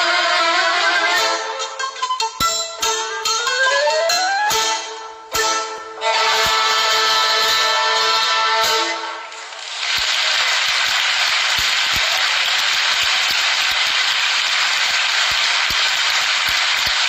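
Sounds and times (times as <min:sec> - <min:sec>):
audience applause: 0:09.1 - 0:17.0.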